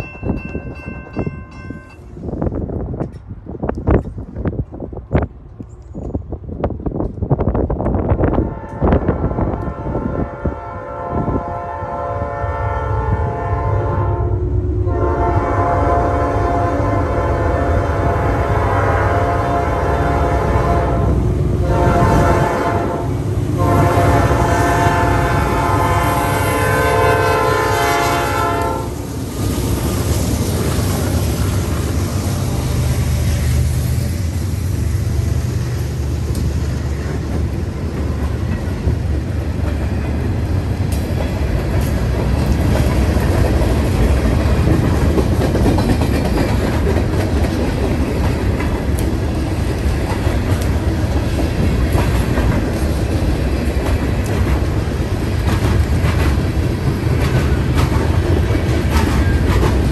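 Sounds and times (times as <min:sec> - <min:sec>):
train rumbling past: 0:00.0 - 0:59.9
locomotive air horn: 0:08.3 - 0:29.0
wheels clacking over rail joints: 0:35.1 - 0:59.9.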